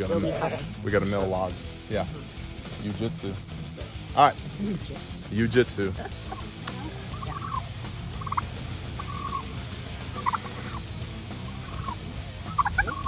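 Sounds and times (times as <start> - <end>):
sheep and lambs bleating: 6.3 - 13.0.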